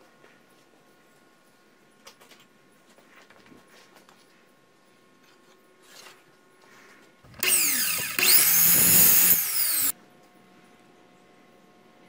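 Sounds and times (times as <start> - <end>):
miter saw whining: 7.4 - 9.9.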